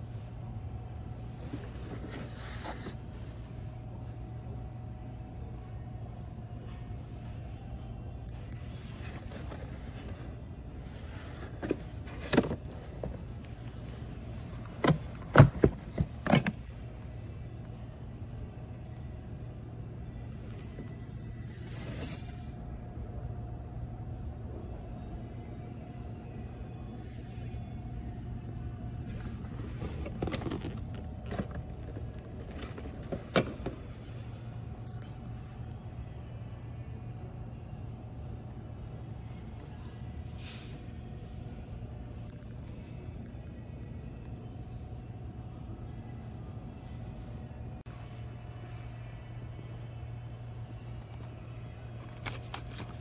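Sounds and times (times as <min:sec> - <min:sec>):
steady low hum: 0:00.0 - 0:53.0
boxes knocking and clattering: 0:11.2 - 0:16.7, 0:29.6 - 0:34.0
metal tools rattling in cardboard box: 0:29.6 - 0:33.8.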